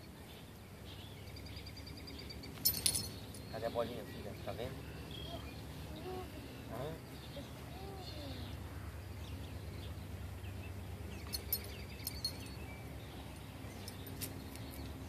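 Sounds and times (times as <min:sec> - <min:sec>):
faint bird chirps: 0:00.0 - 0:10.0.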